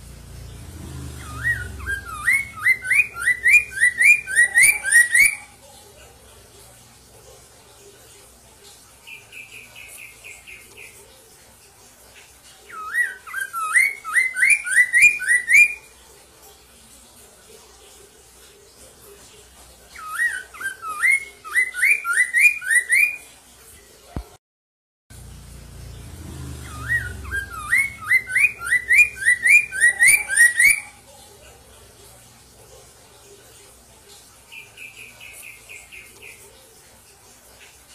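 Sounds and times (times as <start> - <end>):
bird singing whistled notes: 1.1 - 5.5, 12.7 - 15.9, 20.0 - 23.2, 26.5 - 31.0.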